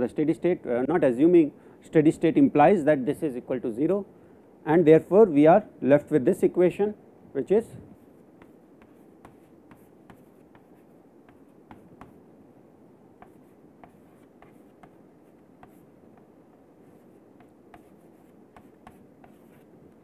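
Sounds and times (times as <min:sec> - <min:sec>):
chalk writing on a chalkboard: 0:08.0 - 0:12.2, 0:13.2 - 0:20.0.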